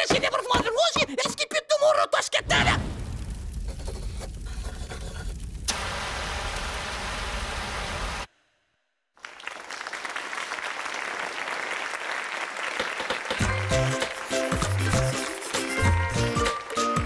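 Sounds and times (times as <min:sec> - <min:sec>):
audience applause: 0:09.2 - 0:17.0.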